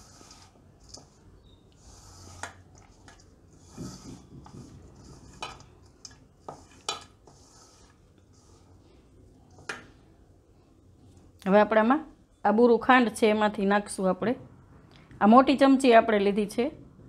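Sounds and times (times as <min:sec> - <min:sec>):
hand mixing food in a bowl: 0:00.0 - 0:10.2.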